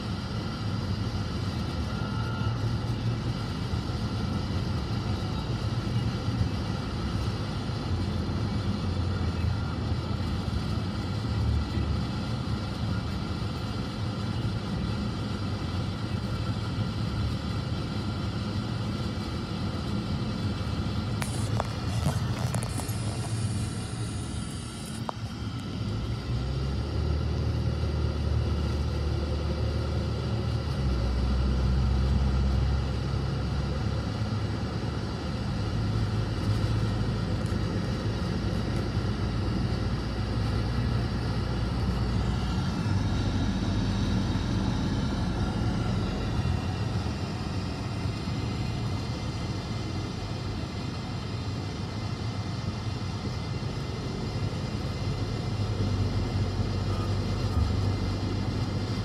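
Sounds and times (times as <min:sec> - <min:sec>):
low engine hum: 0:00.0 - 0:59.0.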